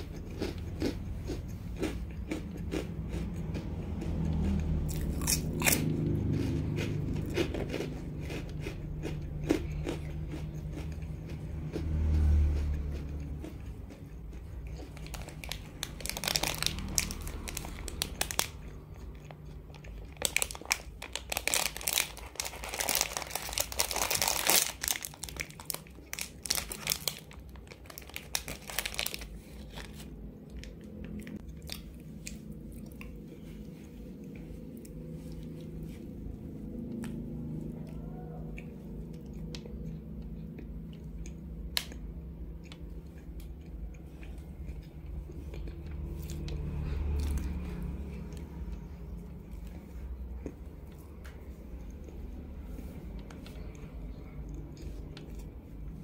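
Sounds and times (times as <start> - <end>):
biting and chewing: 0.0 - 56.0
plastic wrapper crinkling and tearing: 15.0 - 18.6, 20.1 - 30.2.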